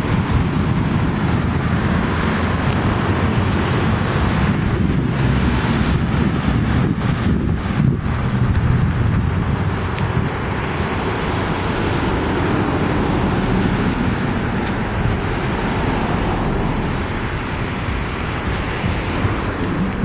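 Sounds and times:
road traffic hum: 0.0 - 20.0.

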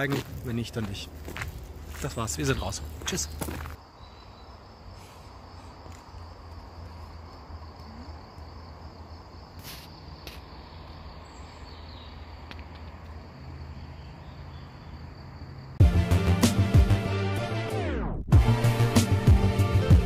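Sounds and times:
insects chirping: 0.0 - 15.8.

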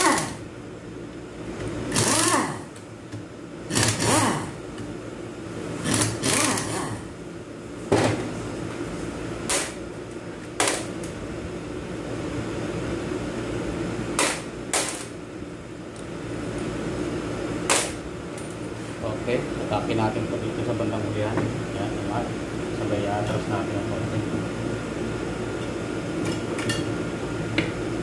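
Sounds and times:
pneumatic ratchet bursts: 0.0 - 0.4, 1.9 - 2.7, 3.7 - 4.6, 5.8 - 7.0
steady low hum: 0.0 - 28.0.

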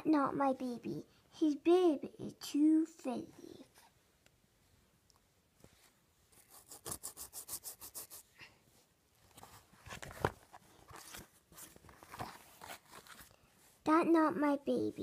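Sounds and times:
fingers rubbing fuzzy fabric: 6.4 - 8.3
board page turning with knock: 9.3 - 13.3.

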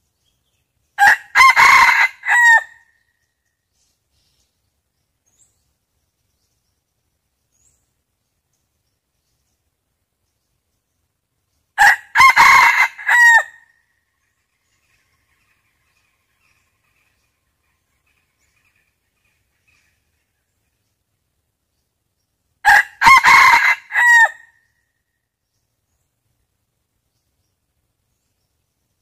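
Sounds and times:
rooster crowing: 1.0 - 2.8, 11.8 - 13.6, 22.6 - 24.5.

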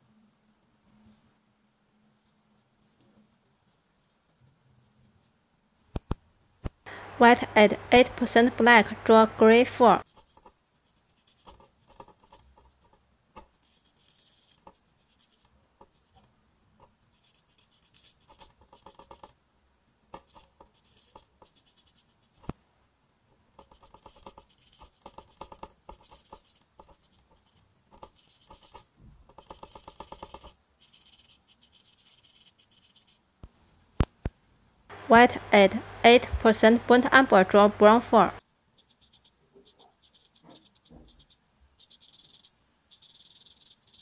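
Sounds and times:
paintbrush scratching on paper: 7.2 - 19.4, 20.1 - 22.5, 23.6 - 33.3, 38.8 - 44.0.

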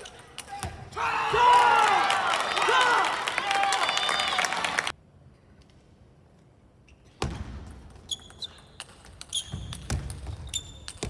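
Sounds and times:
shoes squeaking on floor: 8.0 - 11.0.

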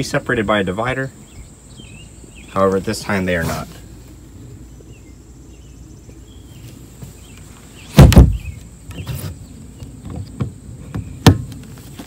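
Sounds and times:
boat lid thudding shut: 7.9 - 9.0, 10.0 - 11.6.

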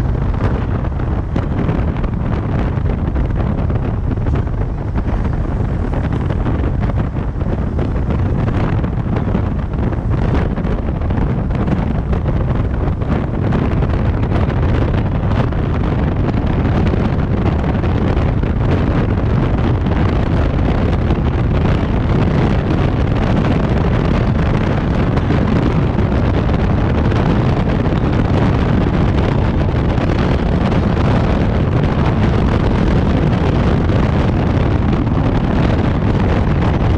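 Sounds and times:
vehicle rumble on road: 0.0 - 36.9
wind buffeting microphone: 0.0 - 36.9.

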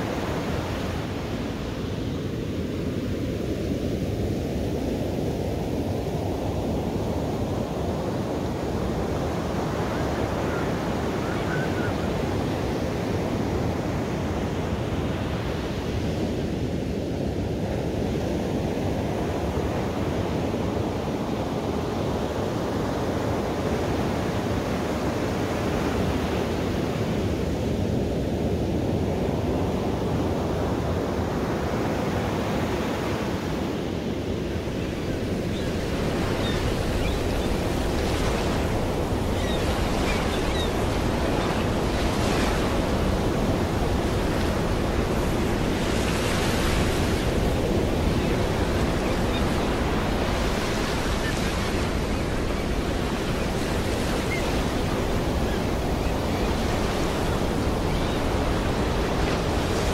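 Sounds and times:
ocean waves breaking: 34.6 - 59.9.

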